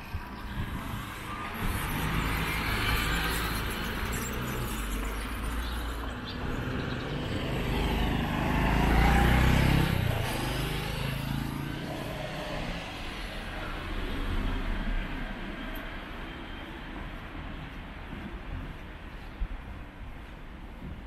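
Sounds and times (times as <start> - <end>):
road traffic: 0.0 - 21.0
vehicle passing close by: 6.2 - 15.3.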